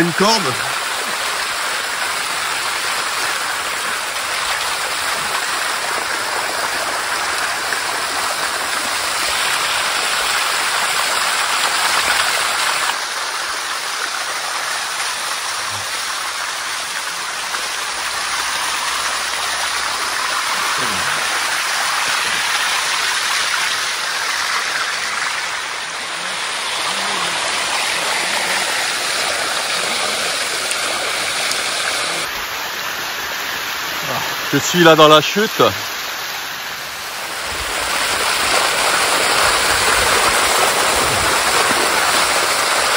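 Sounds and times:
water rushing down small waterfall: 0:00.0 - 0:42.9.

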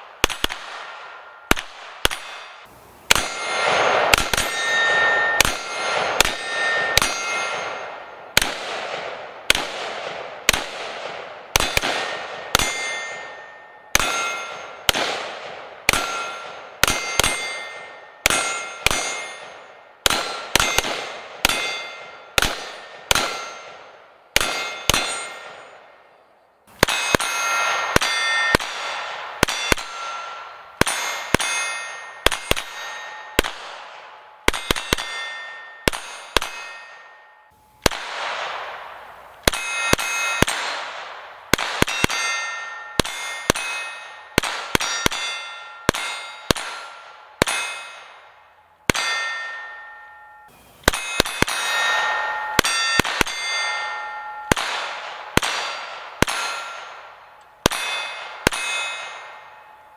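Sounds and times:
gunshots: 0:00.0 - 0:26.0, 0:26.8 - 0:37.2, 0:37.8 - 0:50.0, 0:50.8 - 0:59.6
steel target plate ringing: 0:00.8 - 0:08.4, 0:11.6 - 0:15.0, 0:15.6 - 0:38.8, 0:39.4 - 0:59.9.

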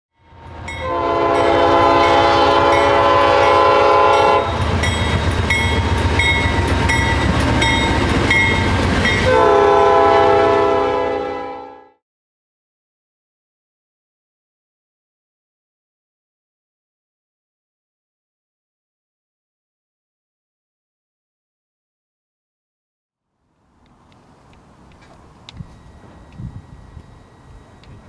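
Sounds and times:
locomotive air horn: 0:00.2 - 0:04.8, 0:09.2 - 0:12.0
train rumbling past: 0:00.2 - 0:11.8, 0:23.6 - 0:28.0
wheels clicking over rail joints: 0:23.8 - 0:28.0.

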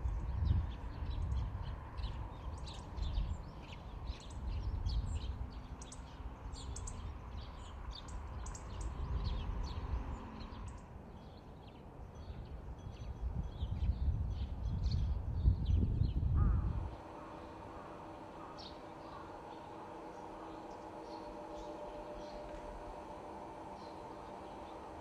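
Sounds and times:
small birds chirping: 0:00.0 - 0:25.0
low uneven rumble: 0:15.3 - 0:25.0.

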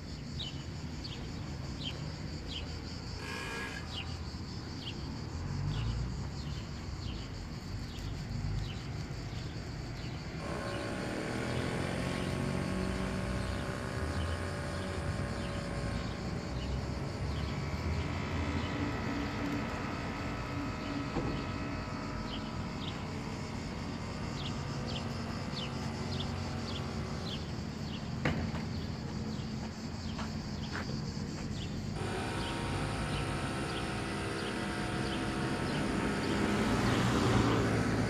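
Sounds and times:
street traffic rumbling: 0:00.0 - 0:38.0
car engine passing close: 0:04.7 - 0:29.1, 0:31.9 - 0:38.0.

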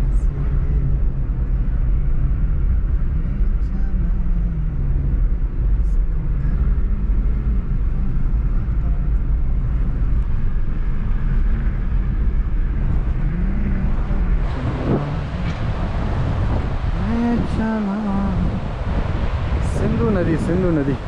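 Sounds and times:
car engine and road rumble: 0:00.0 - 0:21.0
river rushing: 0:13.8 - 0:21.0.

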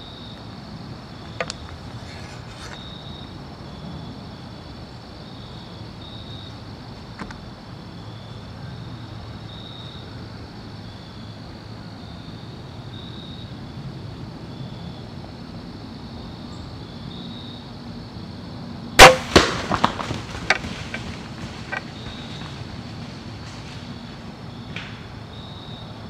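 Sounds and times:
loud sharp crack: 0:19.0 - 0:22.6.

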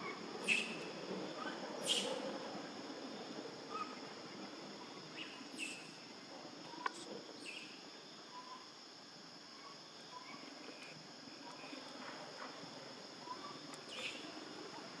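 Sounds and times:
high-pitched insect drone: 0:00.0 - 0:02.3.

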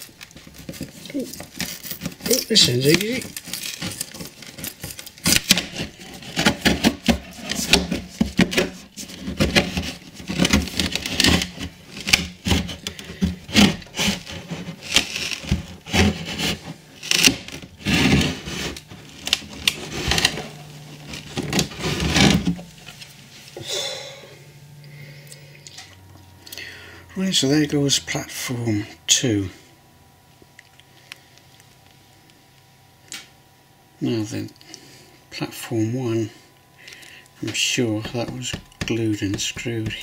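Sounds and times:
wood creaking and cracking: 0:00.1 - 0:22.7
blade scraping wood: 0:05.3 - 0:22.7.

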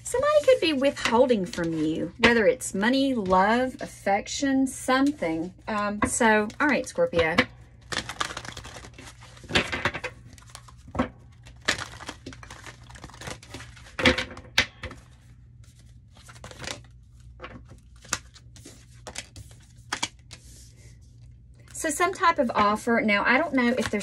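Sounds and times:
cards being shuffled: 0:05.0 - 0:20.8, 0:23.4 - 0:24.0.

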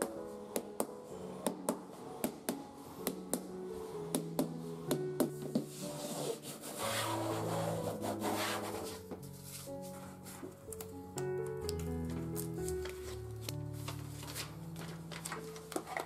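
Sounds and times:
soft piano music: 0:00.0 - 0:16.0
hand rubbing wood: 0:04.1 - 0:10.6.

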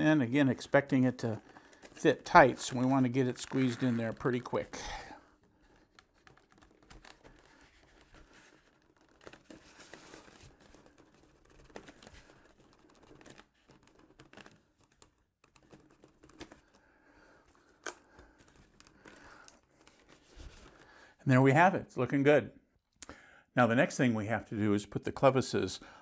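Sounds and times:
hands rubbing and scraping foam: 0:02.0 - 0:04.7.

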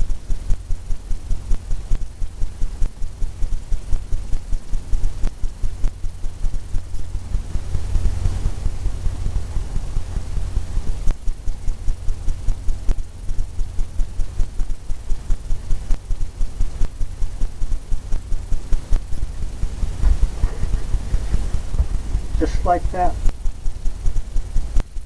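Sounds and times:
brush tapping on canvas: 0:20.0 - 0:22.1.

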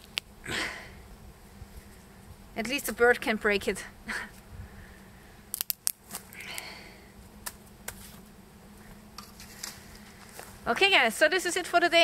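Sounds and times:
cord clicking and snapping: 0:05.5 - 0:06.7
light rustling of cord: 0:08.9 - 0:10.7.

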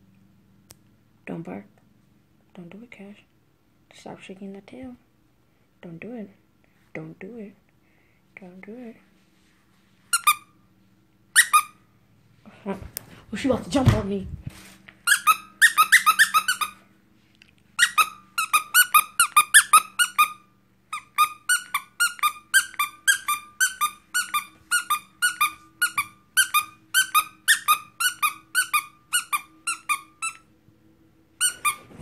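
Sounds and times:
squeaky dog toy squeaking: 0:10.1 - 0:10.6, 0:11.3 - 0:11.8, 0:15.0 - 0:16.8, 0:17.8 - 0:30.5, 0:31.4 - 0:32.0.

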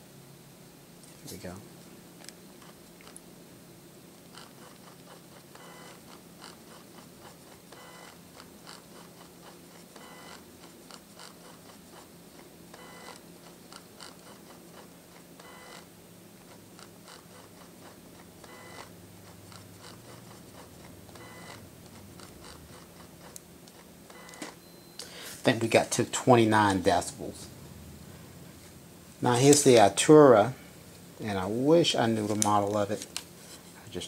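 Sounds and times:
flash zoom motor whirring: 0:04.3 - 0:06.6, 0:07.7 - 0:08.8, 0:10.0 - 0:11.8, 0:12.7 - 0:15.9, 0:18.4 - 0:23.4.

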